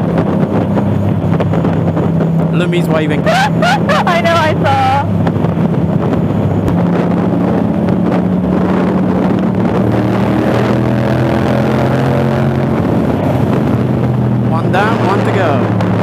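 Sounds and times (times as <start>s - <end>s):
motorcycle engine while riding: 0.0s - 16.0s.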